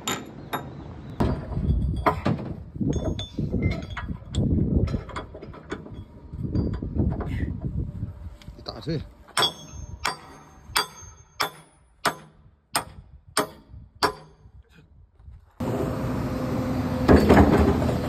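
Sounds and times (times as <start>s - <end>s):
hammer striking steel: 9.3s - 14.4s
excavator engine running: 15.6s - 18.0s.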